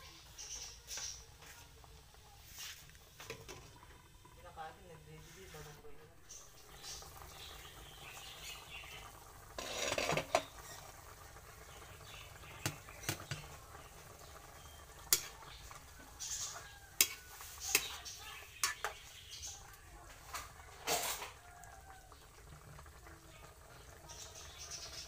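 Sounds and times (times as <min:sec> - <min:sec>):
food simmering: 0:00.0 - 0:25.0
metal utensil scraping a wok: 0:09.5 - 0:10.8, 0:15.1 - 0:15.4, 0:16.2 - 0:19.0.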